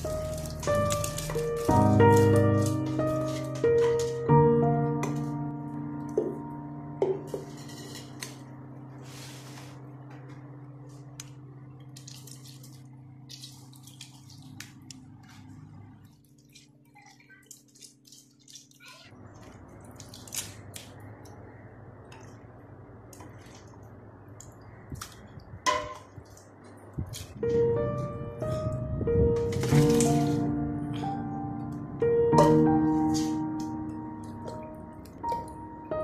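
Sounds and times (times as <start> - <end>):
wet squishing of grapes: 10.9 - 27.4.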